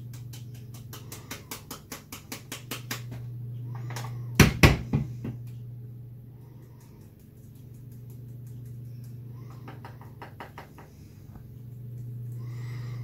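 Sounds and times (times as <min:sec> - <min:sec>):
steady low hum: 0:00.0 - 0:13.0
grinder tapping on plastic funnel: 0:09.5 - 0:11.0.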